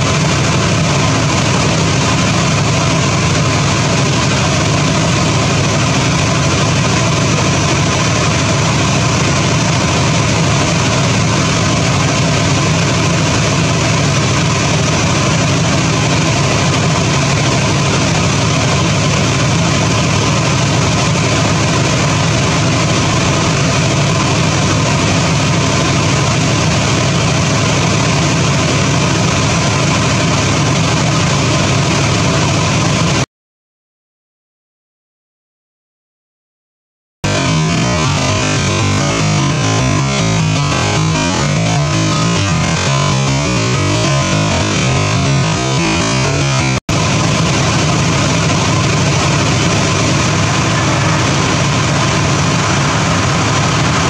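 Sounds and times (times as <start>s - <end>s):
engine idling: 0.0s - 33.2s, 37.3s - 54.0s.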